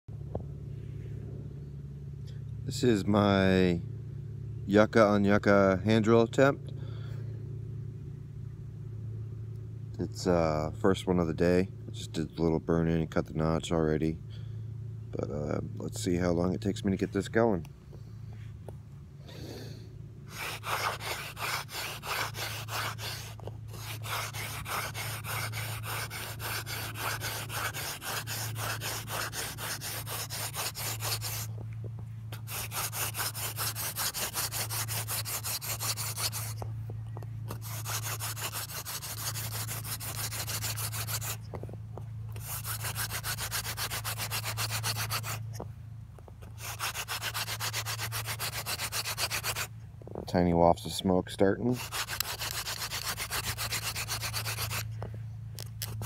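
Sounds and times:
wood-on-wood rubbing: 20.3s - 49.7s, 51.8s - 56.0s.

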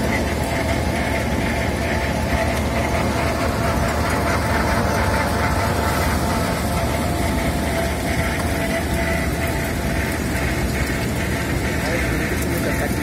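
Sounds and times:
milling machine rumbling with whine: 0.0s - 13.0s.

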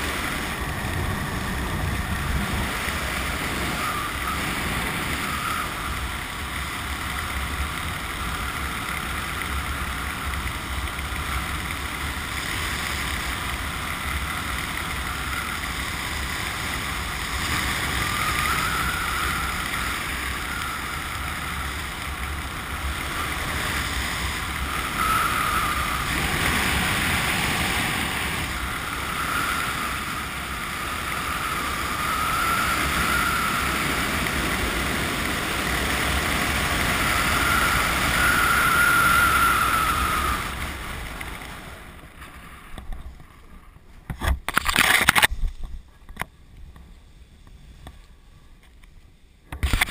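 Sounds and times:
wind rushing over microphone: 0.0s - 48.6s
faint wavering whistle: 3.6s - 6.0s, 17.9s - 21.8s, 24.6s - 26.2s, 28.5s - 34.2s, 36.8s - 41.0s.

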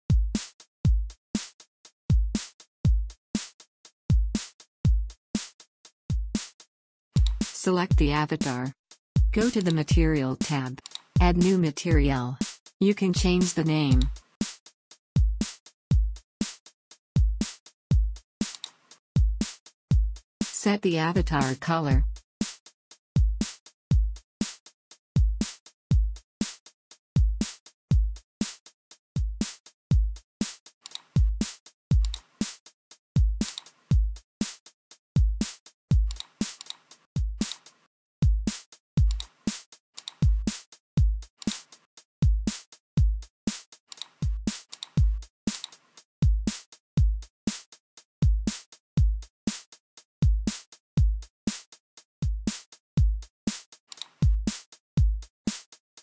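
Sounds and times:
electronic music with drum machine: 7.2s - 14.3s, 20.4s - 22.2s, 30.9s - 32.6s, 35.4s - 37.7s, 38.3s - 42.6s, 44.0s - 46.6s, 54.0s - 55.3s.

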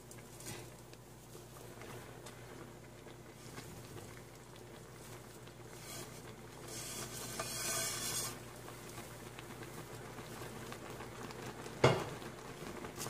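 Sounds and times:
broth simmering and bubbling: 0.0s - 13.0s
hiss: 5.8s - 8.5s.

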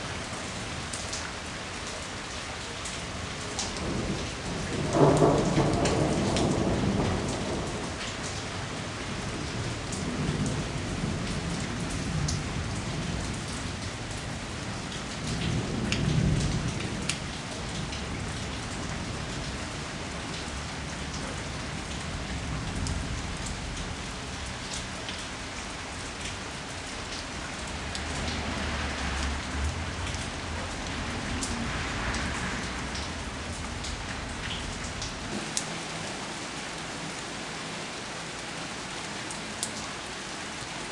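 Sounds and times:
raindrops ticking on surfaces: 0.0s - 40.9s
steady rain falling: 0.0s - 40.9s
thunder rolling: 3.8s - 8.0s.

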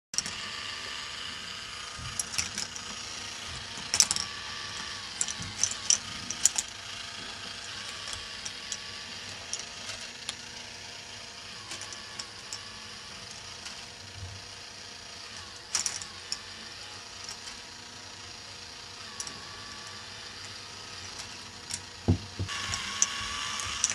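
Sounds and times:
steady motor hum: 0.2s - 23.9s
plastic balls clicking and clacking: 1.9s - 10.8s, 11.6s - 12.6s, 15.3s - 16.5s, 19.1s - 19.4s, 20.4s - 23.9s.

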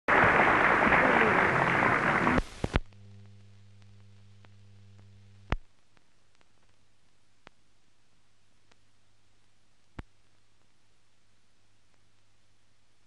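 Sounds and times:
loud crowd noise: 0.1s - 2.5s
old film soundtrack hum: 0.1s - 13.0s
faint ticks: 2.4s - 7.6s.

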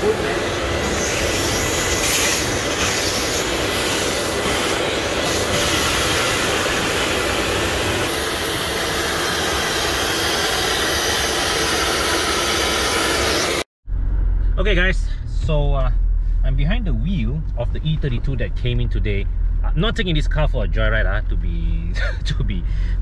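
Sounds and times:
vacuum cleaner running: 0.0s - 13.7s.

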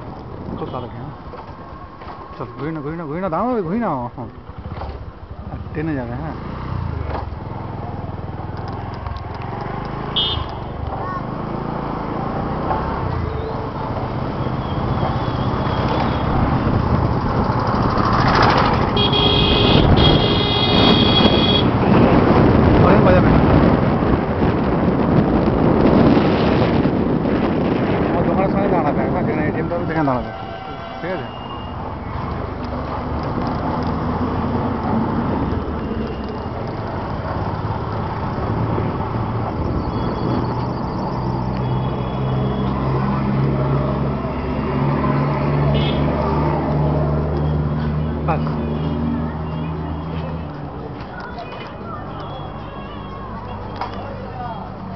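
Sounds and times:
motorcycle engine and road noise: 0.0s - 54.9s
motorcycle horn: 10.1s - 10.7s, 19.0s - 21.7s.

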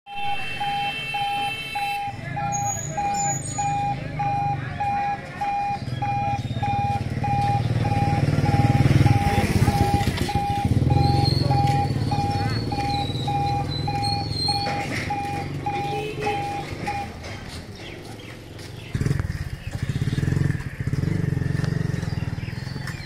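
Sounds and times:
level crossing warning beeps: 0.1s - 17.2s
motorcycle engines: 0.1s - 23.0s.

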